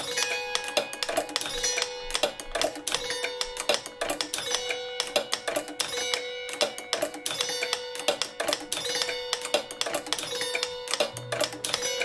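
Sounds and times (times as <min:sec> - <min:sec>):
plucked notes and clicks: 0:00.0 - 0:12.0
steady held tone: 0:11.1 - 0:12.0.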